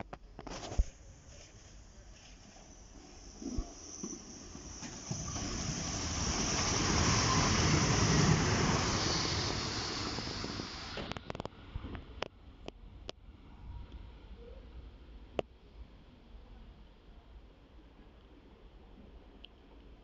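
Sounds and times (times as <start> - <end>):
train wheels rumbling on rail: 2.4 - 11.4.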